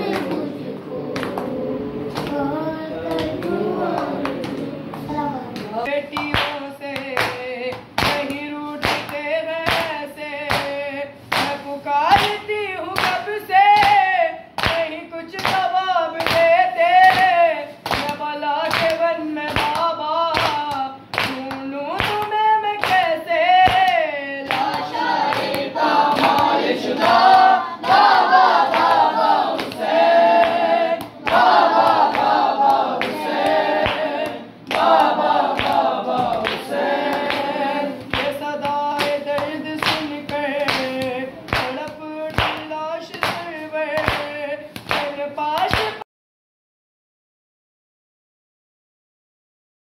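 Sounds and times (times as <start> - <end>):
group of voices chanting: 0.0 - 5.9, 24.4 - 40.1
boy chanting a lament: 0.0 - 46.0.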